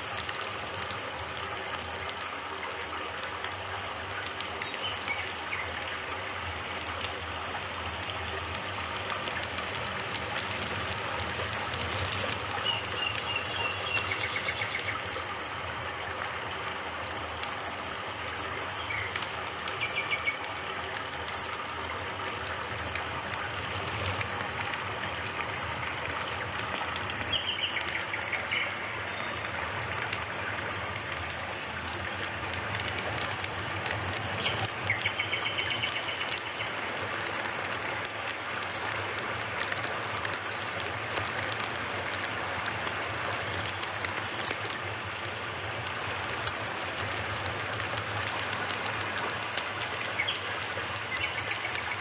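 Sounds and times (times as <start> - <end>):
steady rushing noise: 0.0 - 52.0.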